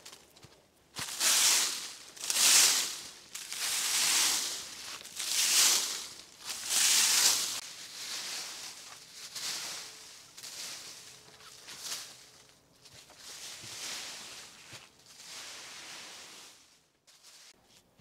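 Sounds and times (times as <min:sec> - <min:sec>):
dry leaves rustling: 0:00.0 - 0:17.6.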